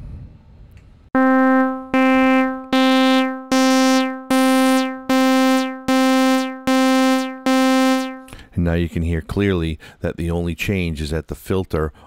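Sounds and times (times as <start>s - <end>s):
synthesizer notes: 1.2s - 8.4s.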